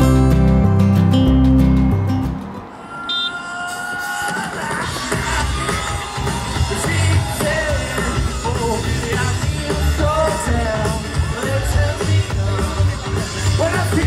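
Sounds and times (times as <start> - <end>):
pulsing bass: 0.0 - 2.5, 5.0 - 14.0
live rock band playing: 0.0 - 2.7, 4.6 - 14.0
lead singer singing: 4.4 - 14.0.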